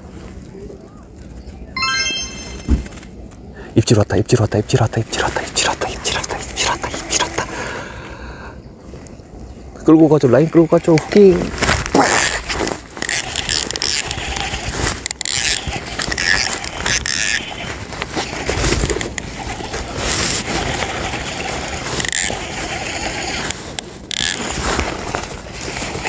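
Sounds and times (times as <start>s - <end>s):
fishing reel cranking: 13.0s - 17.6s, 18.4s - 24.6s.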